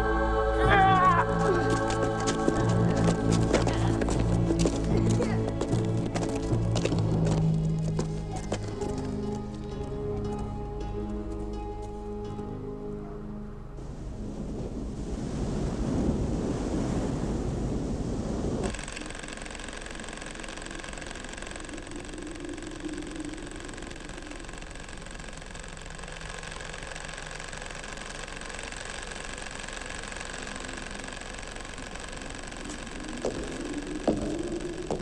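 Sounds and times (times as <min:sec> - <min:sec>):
electrical hum of machinery: 0:00.0 - 0:15.4, 0:18.6 - 0:35.0
thin high whine: 0:18.6 - 0:35.0.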